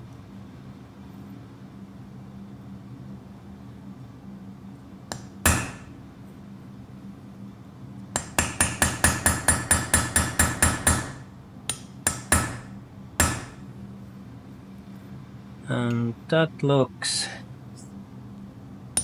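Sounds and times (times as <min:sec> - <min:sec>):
hammer tapping chisel into metal: 0:08.2 - 0:13.6.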